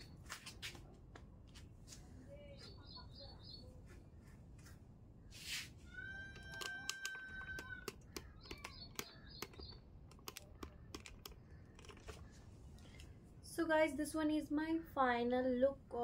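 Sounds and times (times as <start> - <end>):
phone handling clicks and taps: 6.3 - 12.4.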